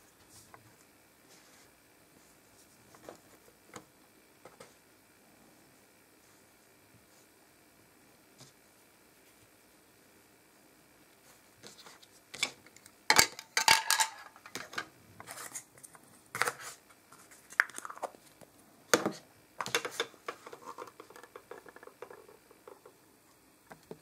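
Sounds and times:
plastic toys knocking and clattering: 12.4 - 14.9, 19.0 - 23.0.

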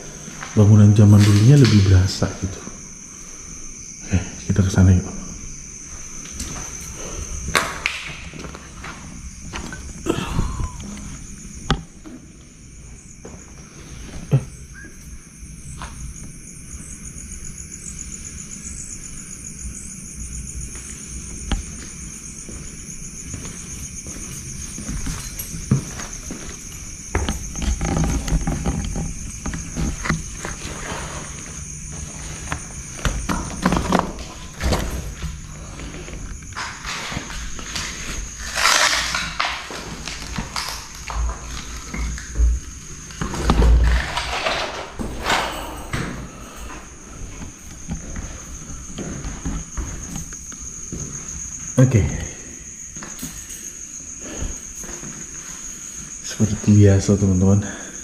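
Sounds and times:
insects chirring: 0.0 - 58.0
footsteps: 5.0 - 12.2, 12.8 - 14.5, 20.7 - 44.1, 45.0 - 51.7.

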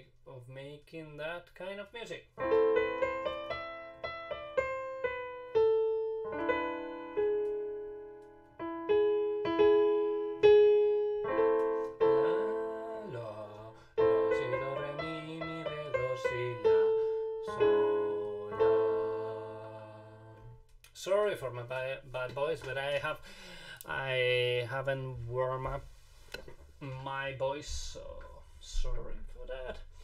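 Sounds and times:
slow minor-key piano melody: 2.4 - 20.7
man singing: 12.0 - 20.6.

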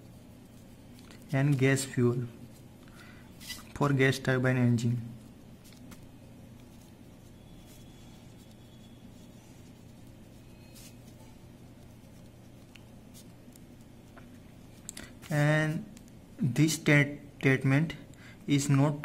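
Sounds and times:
steady low hum: 0.0 - 19.0
pen scratching on paper: 6.6 - 14.1.

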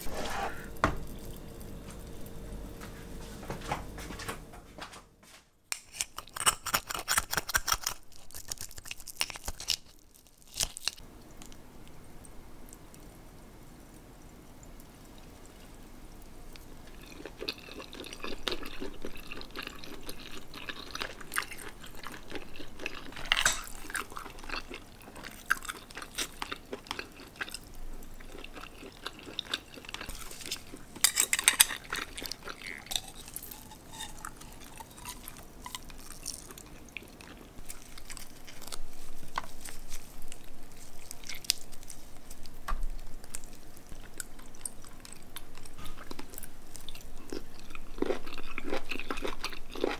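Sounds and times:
wet chewing: 5.8 - 49.9.

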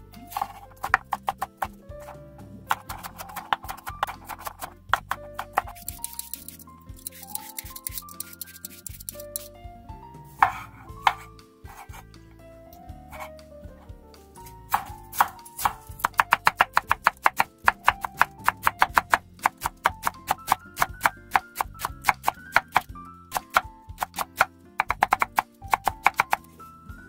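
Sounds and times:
knife shredding on cutting board: 0.3 - 9.5, 14.4 - 26.5
soft cuts through tomatoes: 10.4 - 12.2.

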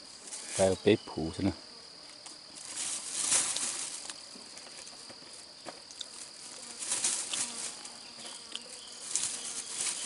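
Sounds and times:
high-pitched insect buzz: 0.0 - 10.0
plastic bag rustling: 2.6 - 5.1, 6.2 - 8.0, 8.9 - 10.0.

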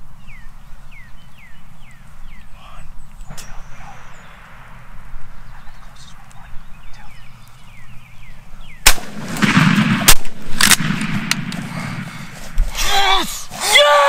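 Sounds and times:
faint bird calls: 0.2 - 8.9
shotgun blasts: 8.8 - 12.4.

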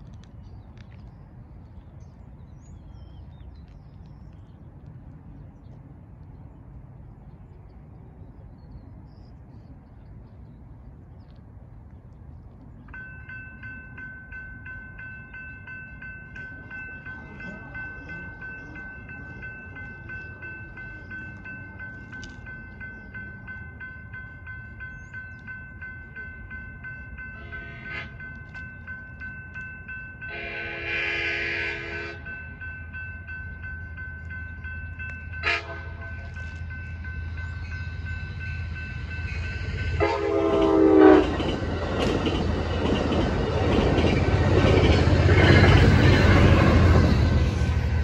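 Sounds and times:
low outdoor rumble: 0.0 - 48.0
crossing signal bells ringing: 12.9 - 48.0.

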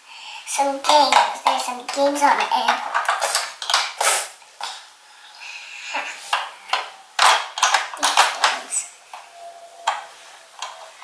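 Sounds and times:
plastic toy pieces clicking: 7.2 - 8.6.

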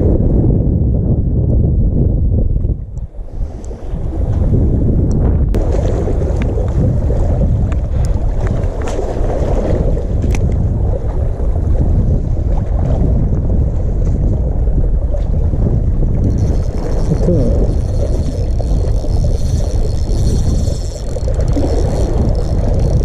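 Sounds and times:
wind buffeting microphone: 0.0 - 23.0
sea surging: 3.1 - 23.0
faint ticks: 16.3 - 23.0.

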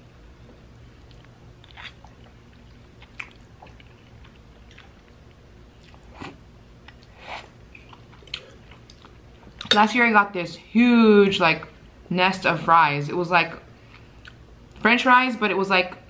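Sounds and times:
faint steady hum: 0.0 - 16.0
chewing and slurping noodles: 1.0 - 5.1.

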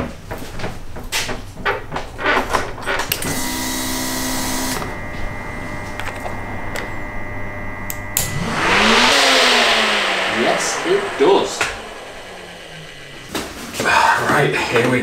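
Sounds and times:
rushing noise: 8.2 - 14.2.

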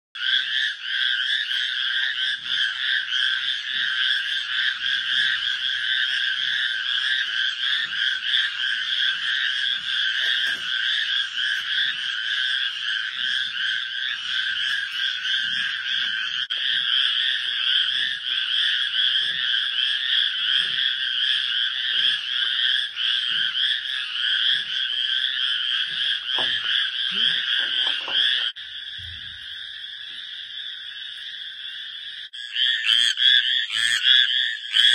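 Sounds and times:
frogs trilling: 0.2 - 34.9.

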